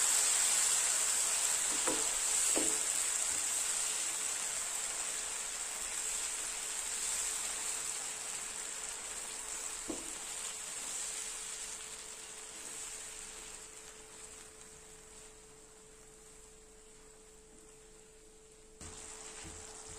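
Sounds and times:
food sizzling in a pan: 0:00.0 - 0:19.9
faint knock: 0:01.7 - 0:02.8, 0:09.8 - 0:10.2.

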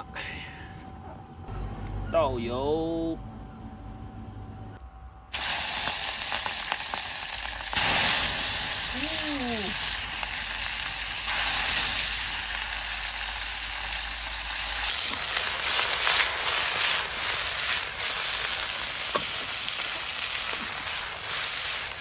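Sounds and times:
chicken sizzling in hot oil: 0:05.4 - 0:22.0.

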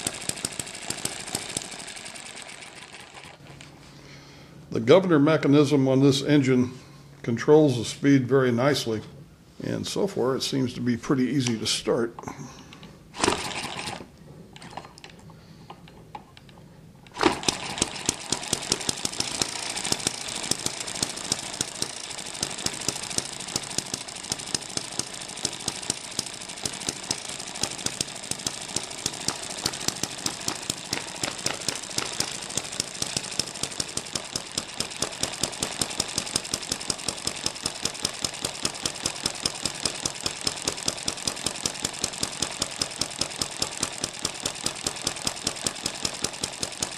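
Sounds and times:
model engine clattering: 0:00.0 - 0:03.4, 0:13.2 - 0:15.2, 0:15.8 - 0:46.9.

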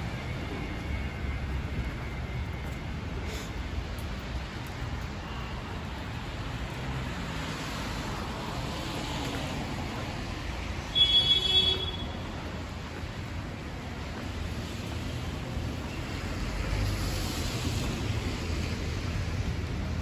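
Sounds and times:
traffic on wet street: 0:00.0 - 0:20.0.

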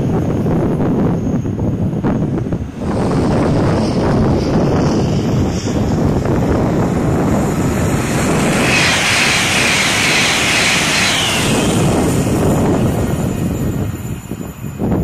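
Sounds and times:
train passing at speed: 0:00.0 - 0:15.0
wind buffeting microphone: 0:00.0 - 0:15.0.

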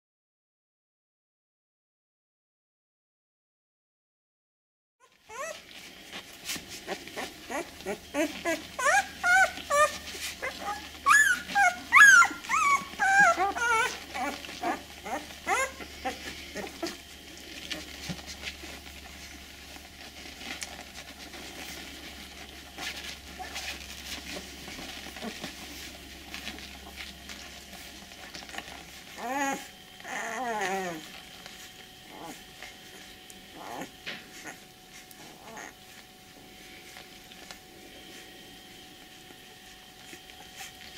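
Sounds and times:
puppy squeals: 0:05.0 - 0:05.8, 0:06.8 - 0:18.5, 0:22.7 - 0:25.6, 0:28.3 - 0:36.0
puppies squeaking and whimpering: 0:05.0 - 0:36.1.

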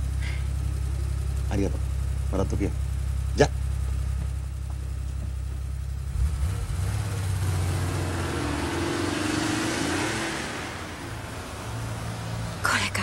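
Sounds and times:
car engine idling and pulling away: 0:00.0 - 0:13.0.

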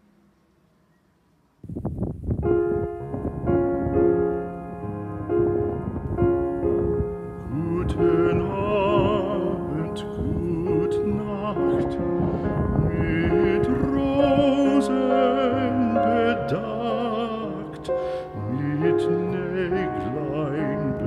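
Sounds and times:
piano music: 0:02.3 - 0:21.0
person singing with vibrato: 0:07.2 - 0:21.0.

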